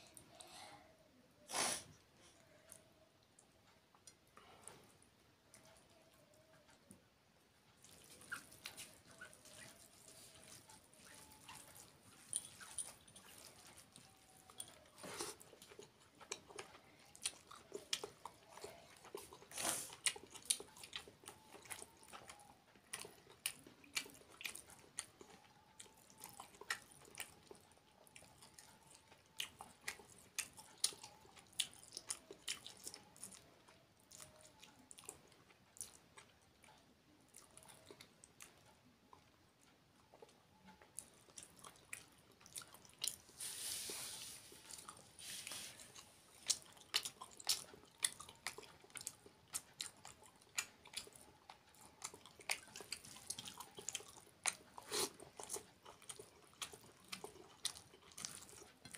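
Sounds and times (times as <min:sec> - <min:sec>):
person chewing: 0:07.7 - 0:58.9.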